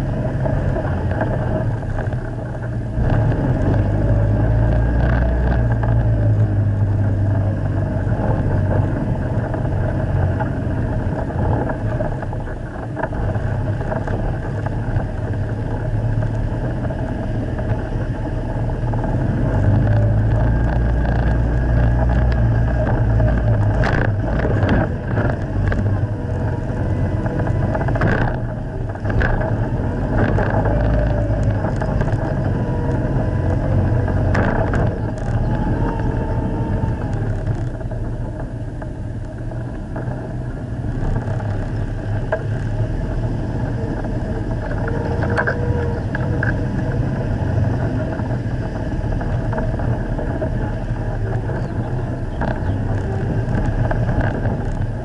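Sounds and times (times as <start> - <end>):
vehicle engine running under load: 0.0 - 55.0
knocks and rattles from bumps: 18.8 - 38.9.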